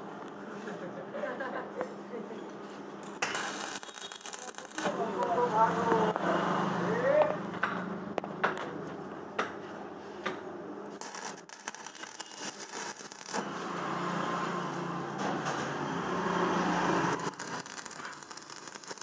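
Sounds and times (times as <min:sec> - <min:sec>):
welding arc crackling: 0:03.2 - 0:06.2, 0:10.9 - 0:19.0.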